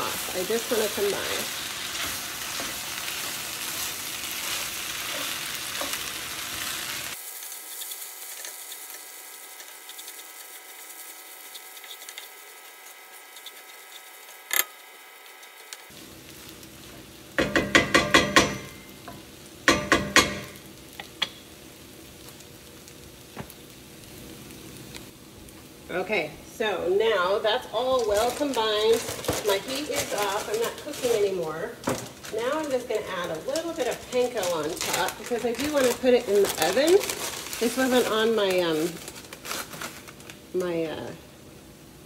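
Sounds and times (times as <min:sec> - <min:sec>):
stirring in a pan: 0:00.0 - 0:21.4
food sizzling in a pan: 0:00.0 - 0:42.0.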